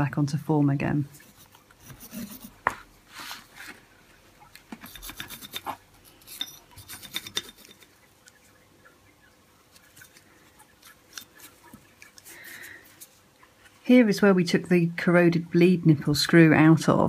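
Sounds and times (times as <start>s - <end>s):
scratchy rubbing of metal parts: 1.1s - 3.6s, 4.7s - 8.0s, 9.7s - 13.3s.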